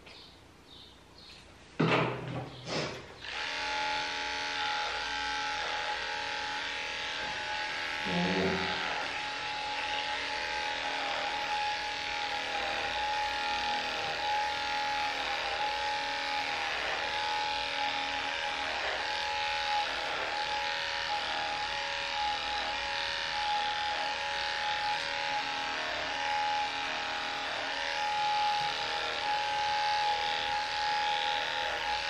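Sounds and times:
electric dog clippers humming: 3.1s - 32.0s.

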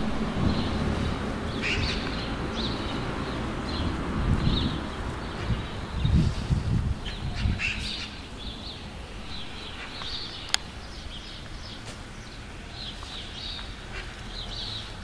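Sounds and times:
songbirds chirping and trilling: 0.0s - 15.0s.

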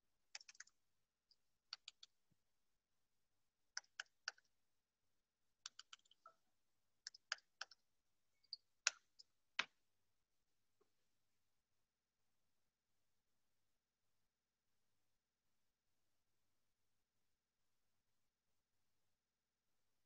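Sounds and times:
faint computer clicking: 0.3s - 0.8s, 1.7s - 2.1s, 5.6s - 6.4s, 7.0s - 7.8s.

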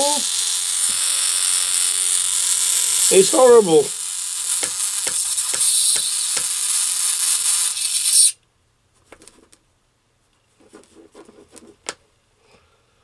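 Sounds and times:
hissy electronic buzz from speaker: 0.0s - 8.4s.

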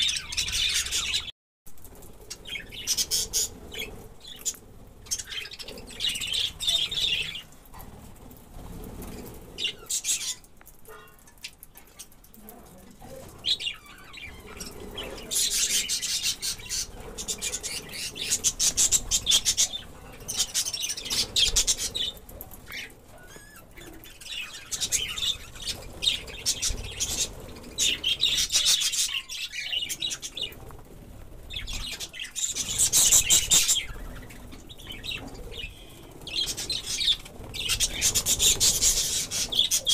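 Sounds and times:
budgerigars chattering and chirping: 13.4s - 30.6s, 31.5s - 39.9s.

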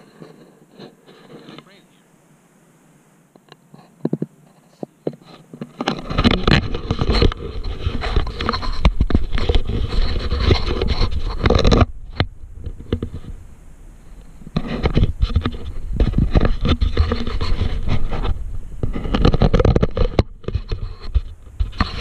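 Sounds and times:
fingers rubbing camera housing: 3.4s - 13.3s, 14.5s - 22.0s.

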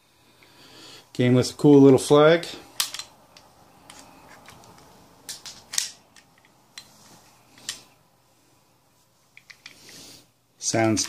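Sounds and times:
pistol action metallic clicks: 5.3s - 6.5s.

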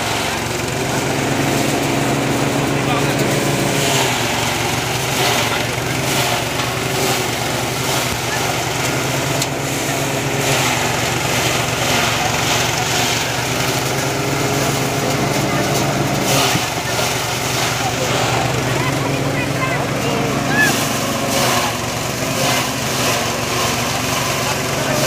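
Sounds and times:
thresher engine drone: 0.0s - 25.0s.

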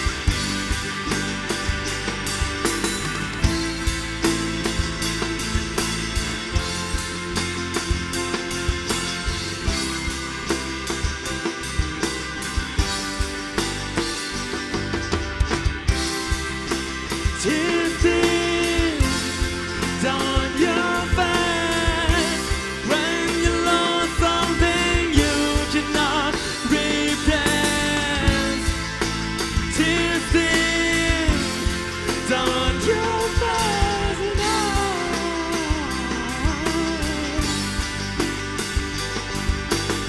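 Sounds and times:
live rock band playing: 0.0s - 40.0s
man singing into a microphone: 17.4s - 28.8s, 29.7s - 37.7s.

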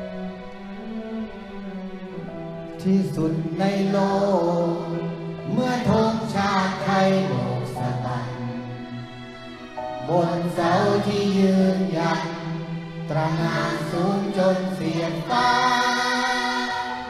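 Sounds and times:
string orchestra playing: 0.0s - 17.0s
man singing into microphone: 2.8s - 8.7s, 10.0s - 12.5s, 13.1s - 15.5s.

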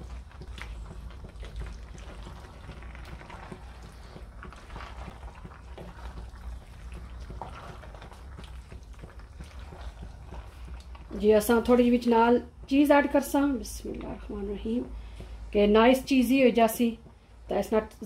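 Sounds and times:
spoon stirring pasta in sauce: 0.0s - 14.2s
low steady hum: 0.0s - 18.0s.

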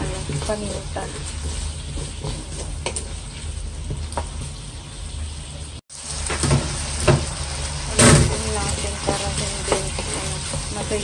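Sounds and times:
spatula knocking and scraping pan: 0.0s - 4.5s, 8.0s - 11.0s
food sizzling in a wok: 0.0s - 11.0s.

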